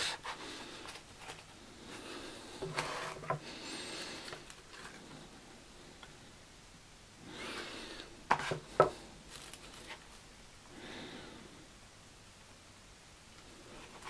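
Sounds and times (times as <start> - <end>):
card rustling against wood shavings: 9.3 - 10.2.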